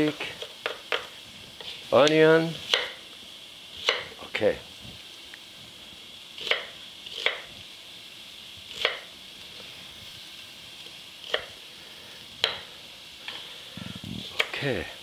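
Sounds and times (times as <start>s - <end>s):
meat sizzling in a pot: 0.0s - 15.0s
knife chopping on wooden board: 2.7s - 3.0s, 3.8s - 4.1s, 6.4s - 7.5s, 8.8s - 9.1s.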